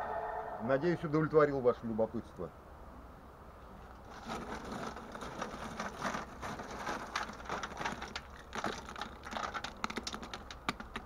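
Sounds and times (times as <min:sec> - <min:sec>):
coal clattering in steel bucket: 0:04.1 - 0:10.9.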